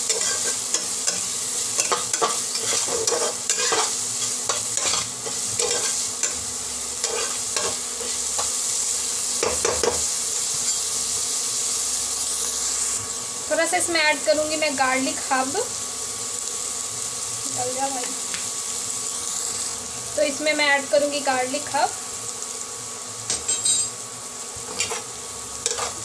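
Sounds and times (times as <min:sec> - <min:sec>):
onions sizzling in hot oil: 0:00.0 - 0:26.0
metal spatula scraping pot: 0:01.8 - 0:03.9.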